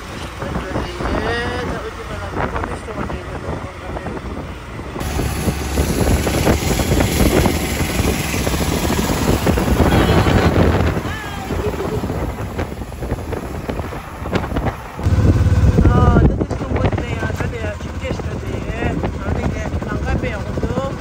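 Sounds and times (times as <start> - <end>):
auto-rickshaw passing alongside: 0.0 - 21.0
vehicle engine and road noise: 0.0 - 21.0
wind buffeting microphone: 0.0 - 21.0.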